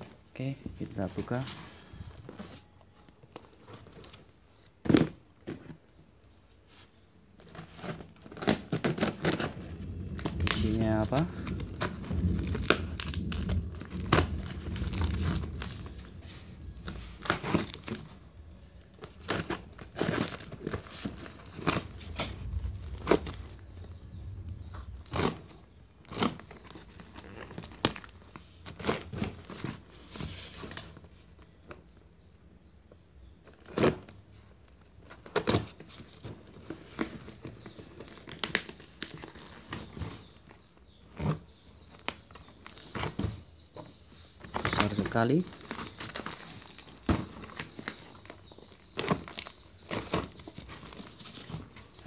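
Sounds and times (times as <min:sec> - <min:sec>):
tape and cardboard tearing: 0:07.4 - 0:10.7.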